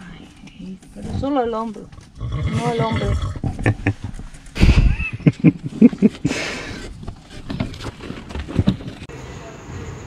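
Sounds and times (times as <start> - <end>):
horse hoof steps: 3.1 - 4.6.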